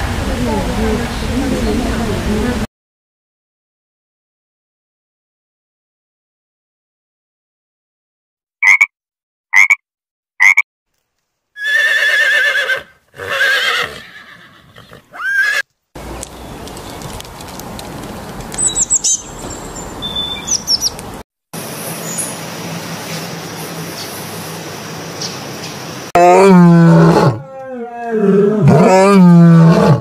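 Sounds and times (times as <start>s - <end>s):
frog croaking: 8.6s - 8.9s, 9.5s - 9.8s, 10.4s - 10.6s
horse whinnying: 11.6s - 15.6s
high bird chirps: 18.6s - 21.0s.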